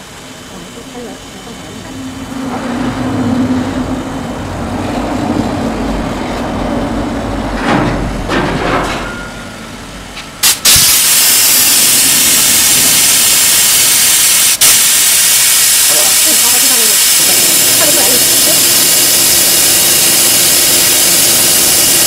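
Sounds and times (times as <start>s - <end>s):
loud steady hiss: 0.0s - 2.5s, 9.6s - 22.0s
laser cutter humming: 14.7s - 22.0s.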